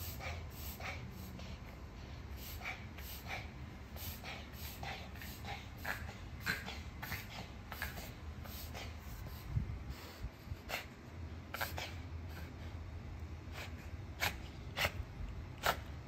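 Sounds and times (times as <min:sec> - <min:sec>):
dog coughing: 0:02.4 - 0:09.0, 0:11.6 - 0:12.5, 0:15.6 - 0:16.0.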